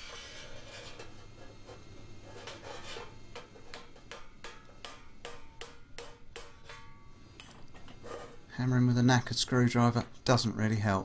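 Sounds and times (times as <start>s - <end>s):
hammer tapping metal: 3.3s - 7.7s.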